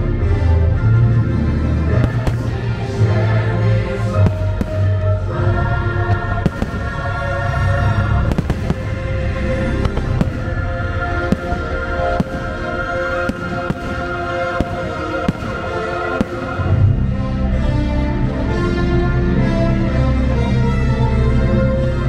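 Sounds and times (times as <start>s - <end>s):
orchestral show music: 0.0s - 22.0s
fireworks bangs: 2.0s - 3.0s, 4.2s - 5.2s, 6.1s - 16.7s.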